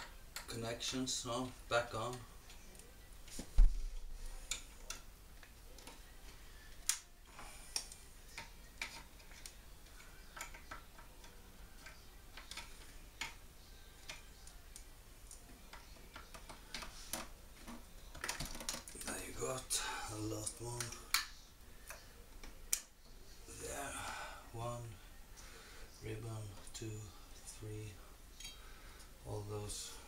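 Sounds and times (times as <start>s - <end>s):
cable connectors clicking: 6.8s - 7.1s, 7.7s - 13.4s.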